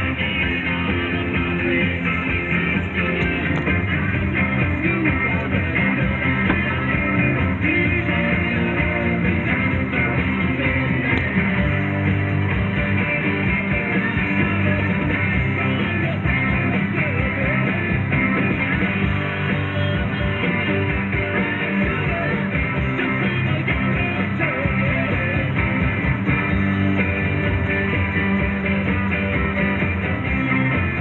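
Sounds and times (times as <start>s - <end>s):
person singing: 0.0s - 12.0s, 12.6s - 26.0s
rock music with electric guitar: 0.0s - 31.0s.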